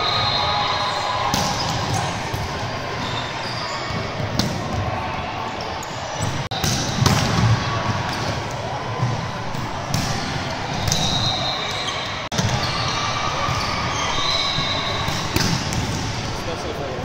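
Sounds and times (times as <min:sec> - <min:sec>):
shoe squeaks: 0:03.0 - 0:04.2, 0:10.9 - 0:15.4.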